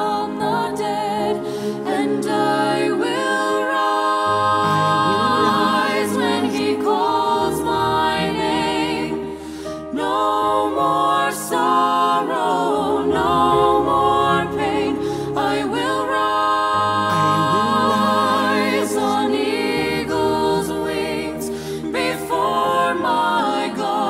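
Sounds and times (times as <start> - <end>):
choir singing held notes: 0.0 - 24.0.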